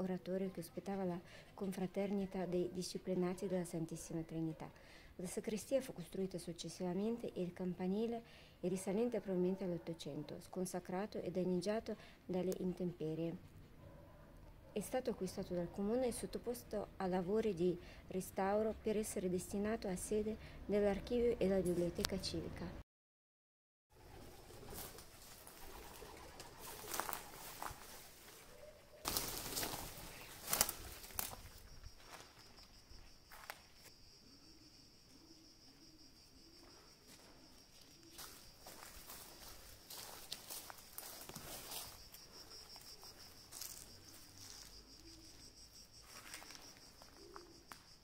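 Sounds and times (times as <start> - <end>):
bird wing flurries: 24.1 - 31.5
insect trilling: 29.0 - 48.0
soft rustles: 38.1 - 42.1.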